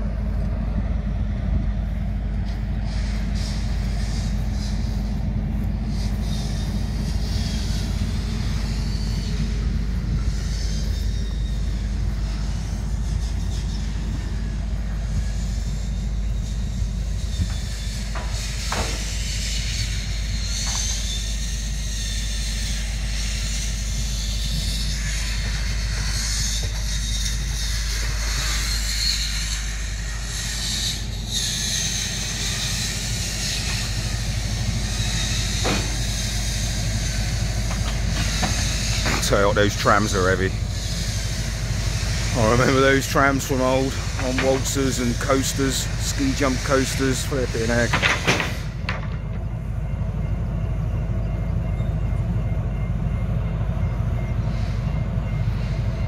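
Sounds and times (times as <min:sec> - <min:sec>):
diesel engine rumble: 0:00.0 - 0:56.0
hiss: 0:02.4 - 0:48.8
metal clanks: 0:35.4 - 0:36.2.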